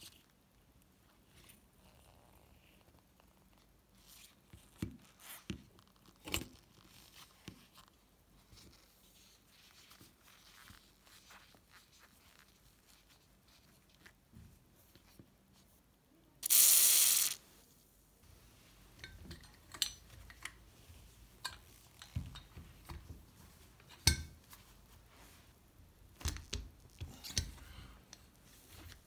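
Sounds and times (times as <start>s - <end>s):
work gloves rustling: 3.4s - 29.0s
aerosol can spraying hiss: 16.4s - 17.4s.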